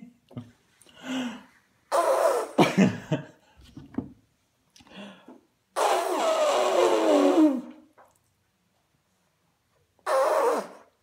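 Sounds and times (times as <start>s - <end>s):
short pitched vocal bursts: 5.8s - 7.8s, 10.0s - 10.9s.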